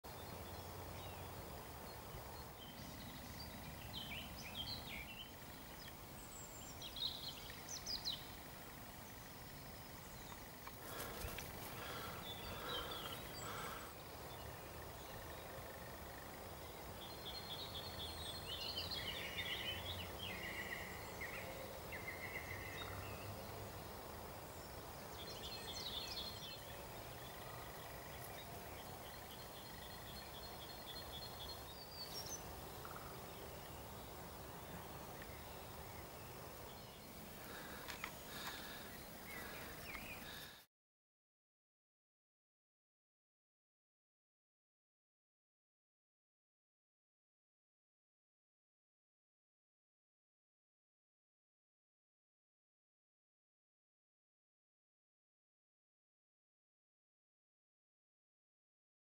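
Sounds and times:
faint outdoor background noise: 0:00.0 - 0:40.7
songbirds chirping: 0:00.0 - 0:40.7.

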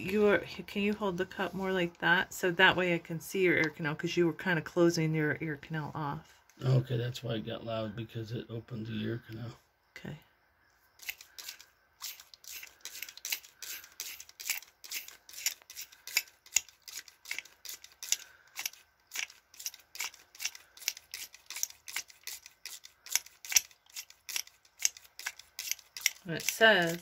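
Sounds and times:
spray bottle squirting water: 0:11.0 - 0:27.0.

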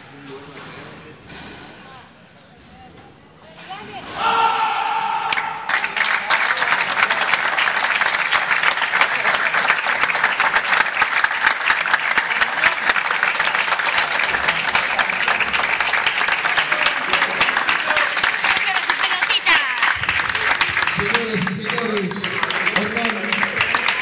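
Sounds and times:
audience applauding: 0:05.3 - 0:24.0.

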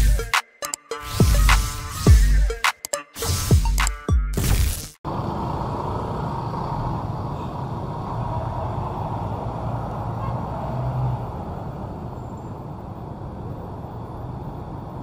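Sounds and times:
cars and motorbikes passing: 0:05.1 - 0:15.0.

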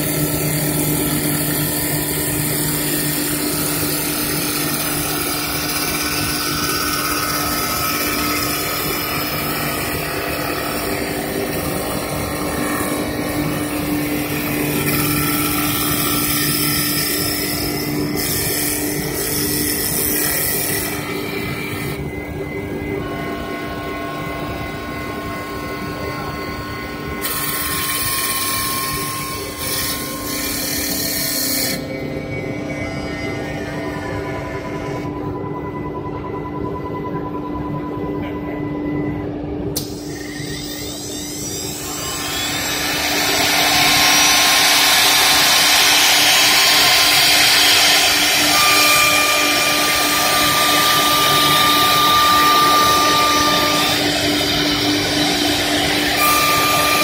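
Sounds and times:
lathe machine hum: 0:00.0 - 0:35.5, 0:39.4 - 0:57.0
motor hum: 0:39.8 - 0:57.0.

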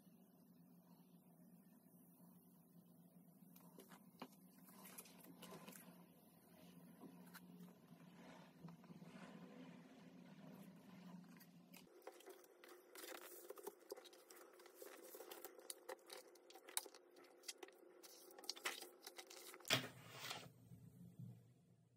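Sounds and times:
paper and card rustling: 0:11.8 - 0:20.5.

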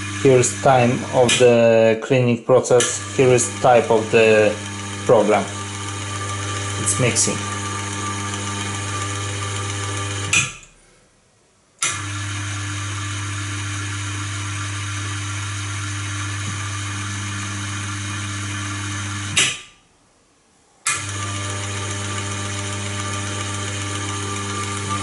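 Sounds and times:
electric gear motor humming: 0:00.0 - 0:02.0, 0:02.6 - 0:10.7, 0:11.8 - 0:19.4, 0:20.9 - 0:25.0
motor switch click: 0:02.8 - 0:03.0, 0:10.2 - 0:10.7, 0:11.8 - 0:12.1, 0:20.8 - 0:21.1.

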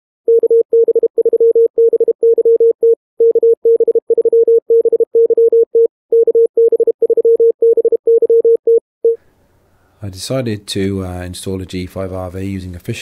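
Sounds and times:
morse code beeps: 0:00.3 - 0:09.2.

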